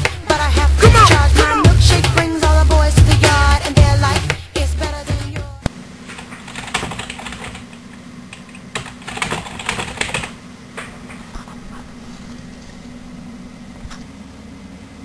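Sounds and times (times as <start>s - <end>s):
steady low hum: 0.0s - 15.0s
keyboard typing: 6.1s - 11.2s.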